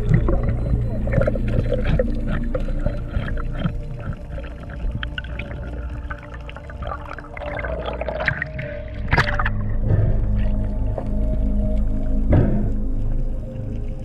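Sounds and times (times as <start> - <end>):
steady low hum: 0.0 - 7.0
water splash: 0.0 - 11.2
underwater gurgling and bubbling: 0.0 - 14.0.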